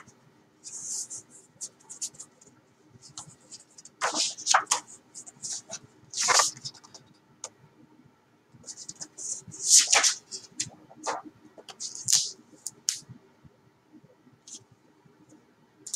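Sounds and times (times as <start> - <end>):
book pages and cover rustling: 3.2 - 7.0, 8.7 - 12.3.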